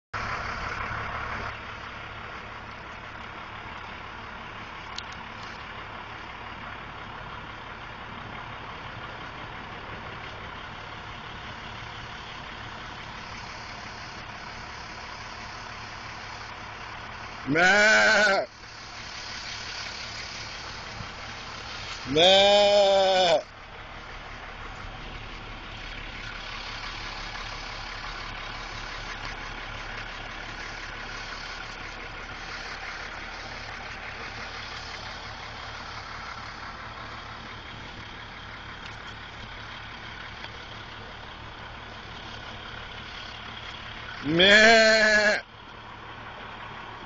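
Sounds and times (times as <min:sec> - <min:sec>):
man mooing: 0:17.5 - 0:18.5, 0:22.0 - 0:23.5, 0:44.2 - 0:45.4.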